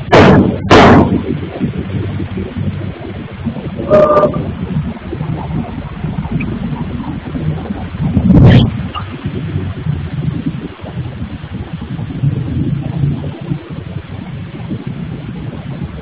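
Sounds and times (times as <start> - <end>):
low rumble of machinery: 0.0 - 16.0
sharp knock: 0.1 - 1.3.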